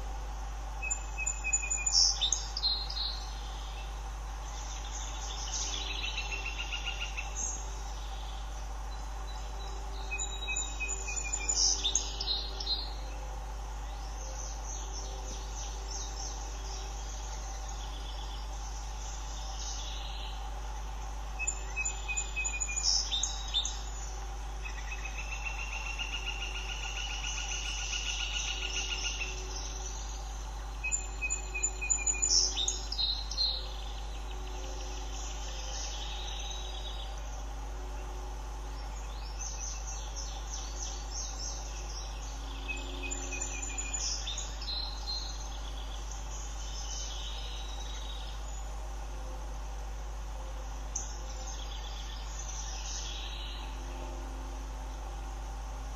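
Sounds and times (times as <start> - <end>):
constant low hum: 0.0 - 55.9
high chattering birdsong: 0.0 - 55.9.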